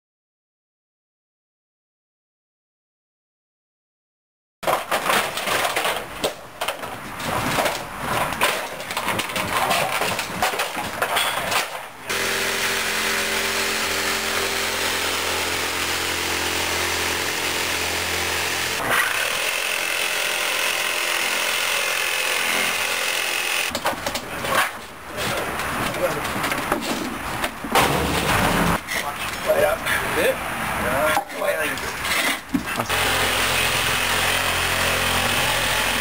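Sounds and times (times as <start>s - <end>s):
knocking and clattering of gutters: 4.6s - 11.8s
reciprocating saw cutting: 12.1s - 23.7s.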